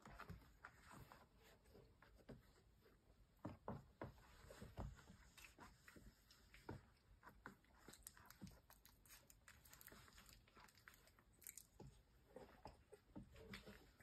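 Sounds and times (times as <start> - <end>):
puppies scuffling: 0.0 - 14.0.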